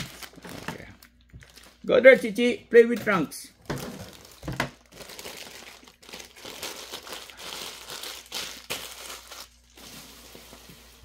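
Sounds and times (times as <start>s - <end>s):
plastic bag crinkling: 0.0s - 2.4s, 3.6s - 11.0s.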